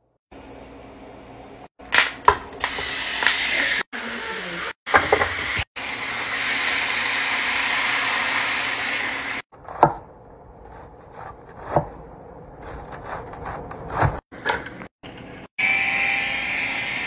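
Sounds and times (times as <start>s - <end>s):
knife slicing cabbage on board: 12.6s - 14.6s.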